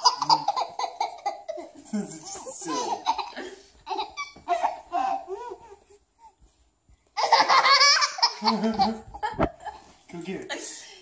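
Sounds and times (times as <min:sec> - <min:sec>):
baby belly laughing: 0:00.0 - 0:05.8, 0:07.2 - 0:09.8.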